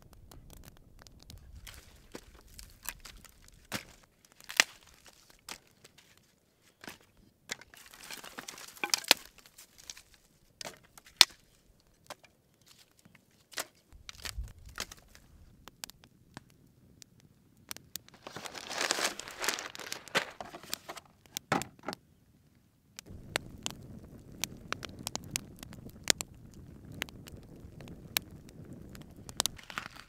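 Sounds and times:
dry twigs snapping: 0:00.0 - 0:06.2, 0:06.8 - 0:16.0, 0:17.7 - 0:21.5, 0:28.9 - 0:30.0
fire crackling: 0:00.0 - 0:30.0.

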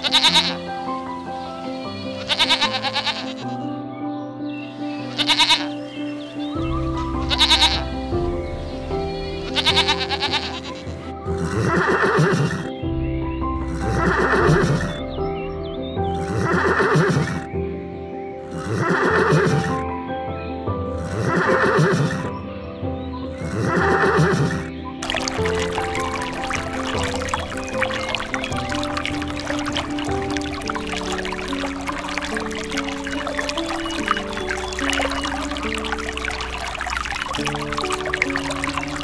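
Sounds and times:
background music: 0:00.0 - 0:39.0
animal call: 0:05.1 - 0:05.8, 0:09.5 - 0:12.7, 0:13.7 - 0:15.0, 0:16.2 - 0:17.5, 0:21.1 - 0:22.3, 0:23.4 - 0:39.0.

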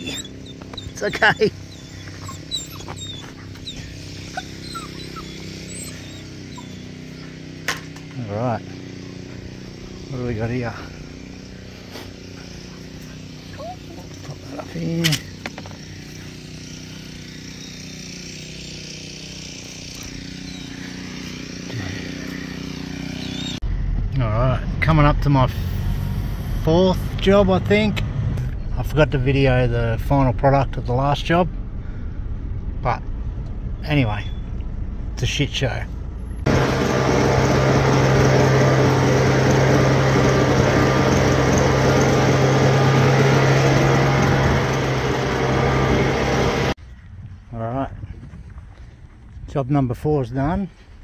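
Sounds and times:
small engine running: 0:00.0 - 0:23.6, 0:36.2 - 0:46.8.

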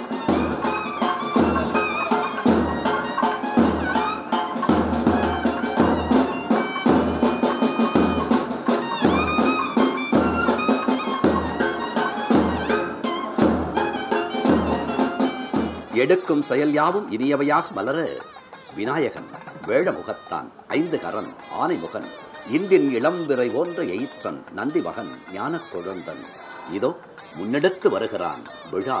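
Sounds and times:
steady drum beat: 0:00.0 - 0:16.0
reedy wind instrument melody: 0:00.0 - 0:16.2.

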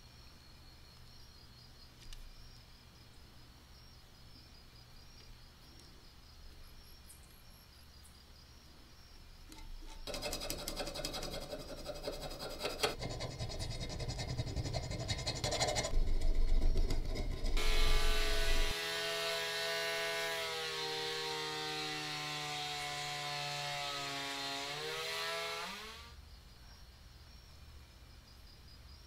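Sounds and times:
metal file rasping on iron: 0:09.5 - 0:19.6
rotary tool grinding whine: 0:09.5 - 0:26.2.

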